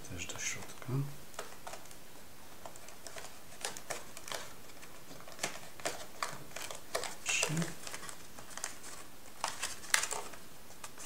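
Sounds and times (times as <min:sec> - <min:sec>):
metallised paper crinkling: 0:02.6 - 0:11.0.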